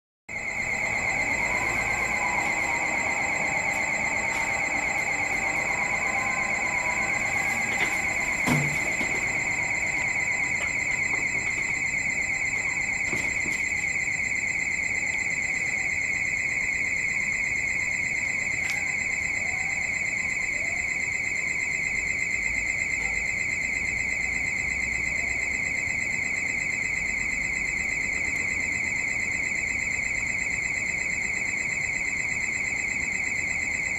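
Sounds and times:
high-pitched warbling alarm: 0:00.3 - 0:25.6.

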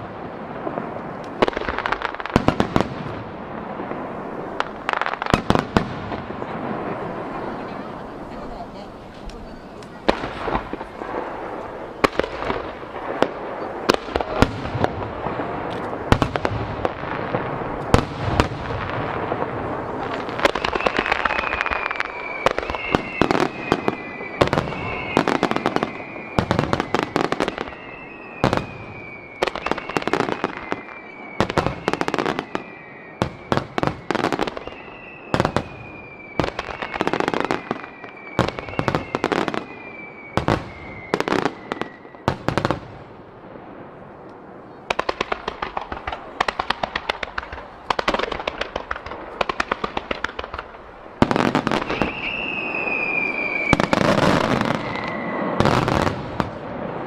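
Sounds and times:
fireworks crackling: 0:00.0 - 0:57.0
falling whistles: 0:20.4 - 0:42.4, 0:51.7 - 0:55.7.

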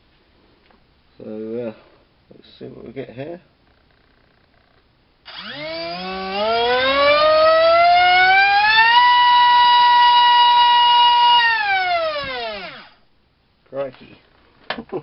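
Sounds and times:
drone motor whine: 0:05.3 - 0:13.0.

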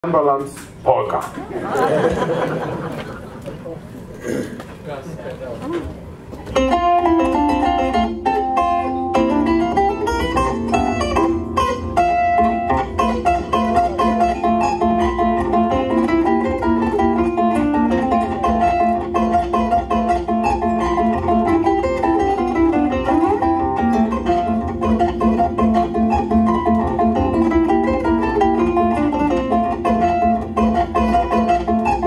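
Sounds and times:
zither plucked melody: 0:06.6 - 0:32.0.

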